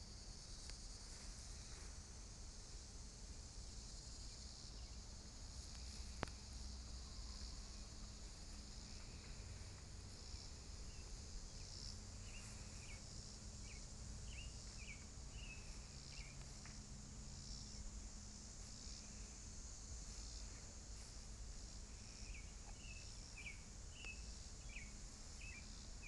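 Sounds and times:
insects droning: 0.0 - 26.0
bird chirping: 10.9 - 16.4.

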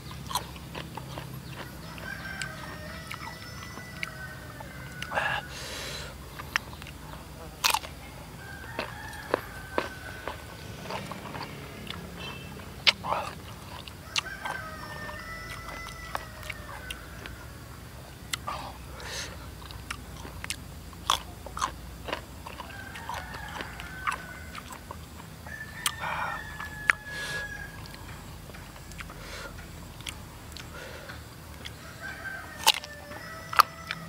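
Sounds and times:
faint bird calls: 0.0 - 19.6
crunchy mango chewing: 0.0 - 34.0.

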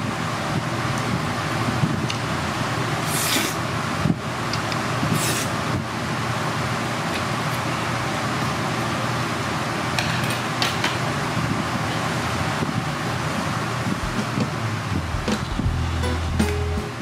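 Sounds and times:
low hum and hiss: 0.0 - 17.0
short sharp hissing: 3.0 - 3.6, 5.1 - 5.6.

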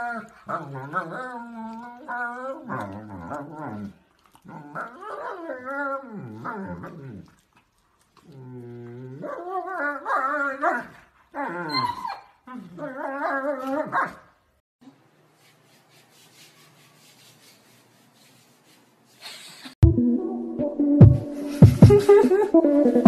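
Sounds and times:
dogs whining howls: 9.2 - 14.2.

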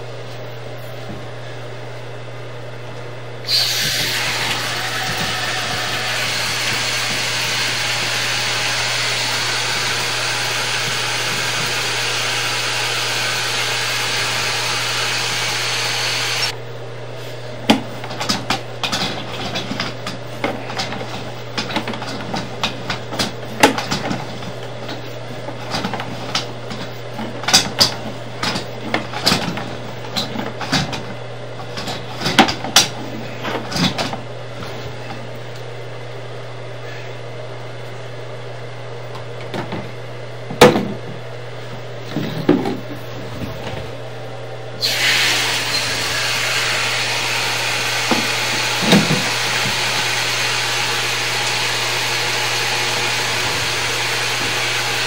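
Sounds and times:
loud steady hiss: 3.4 - 16.5.

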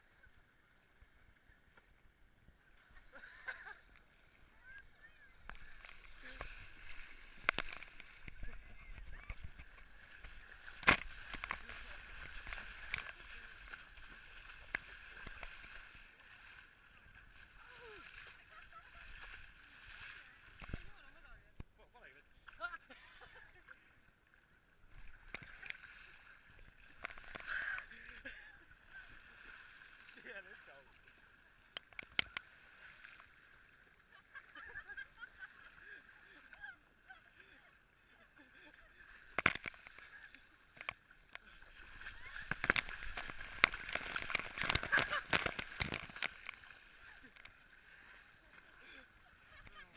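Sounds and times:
sea water splashing: 0.0 - 49.9
people running through water: 17.3 - 21.0, 41.6 - 47.4.

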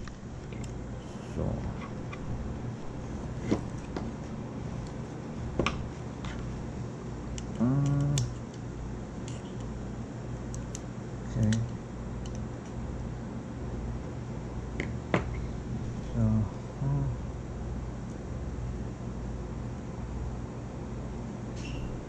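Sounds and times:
steady low hum: 0.0 - 22.0
person humming: 7.5 - 8.4, 16.1 - 17.2.

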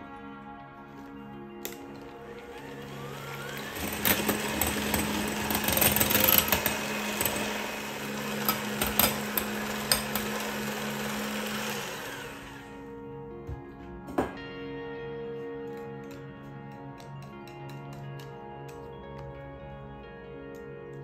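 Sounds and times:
electric hand mixer motor hum: 2.0 - 13.0
beaters clicking on glass bowl: 3.7 - 10.6.

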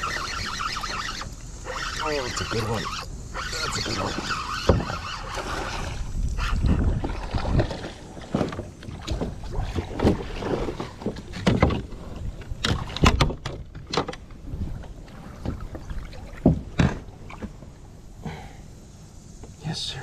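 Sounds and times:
water splashing: 0.0 - 13.4, 15.0 - 17.8.

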